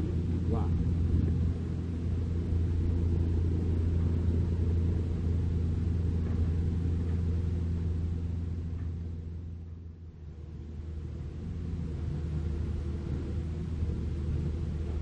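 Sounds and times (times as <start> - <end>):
diesel truck engine rumbling: 0.0 - 15.0.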